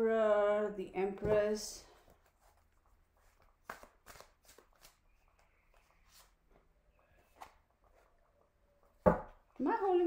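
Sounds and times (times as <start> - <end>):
cards slapping on table: 3.6 - 4.9.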